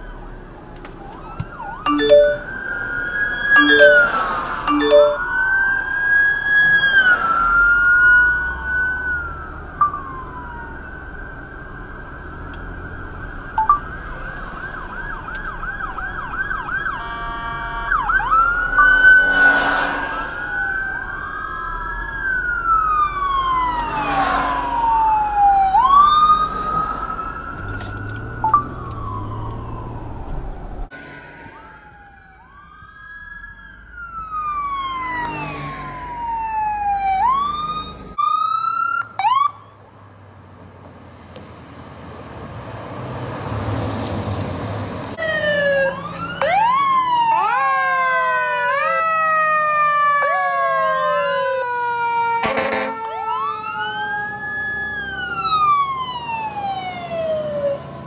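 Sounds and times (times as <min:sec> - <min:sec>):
emergency sirens wailing: 0:00.0 - 0:39.9, 0:45.0 - 0:58.0.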